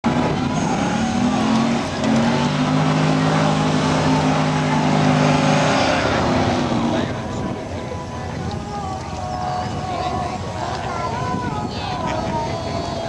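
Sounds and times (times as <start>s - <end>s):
car engine revving high: 0.1s - 7.3s.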